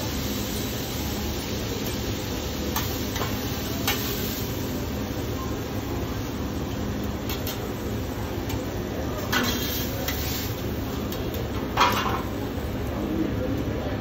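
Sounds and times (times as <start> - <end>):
kitchen background noise: 0.0 - 14.0
metal spatulas clacking on griddle: 9.2 - 10.3, 11.0 - 12.3.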